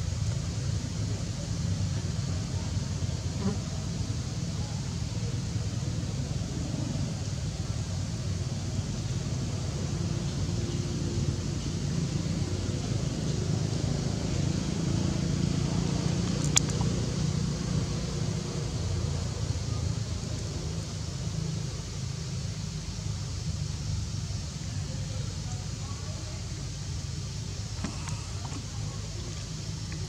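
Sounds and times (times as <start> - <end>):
low outdoor rumble: 0.0 - 30.0
sharp click: 16.4 - 16.9.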